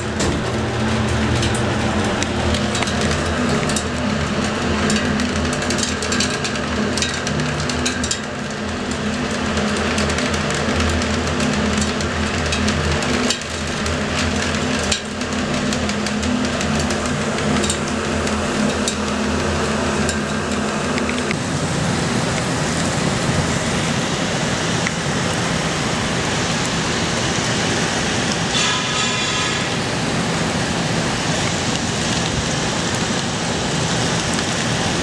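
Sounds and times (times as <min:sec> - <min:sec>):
elevator mechanical hum: 0:00.0 - 0:35.0
steady rushing noise: 0:00.0 - 0:35.0
water dripping ticks: 0:02.1 - 0:21.4.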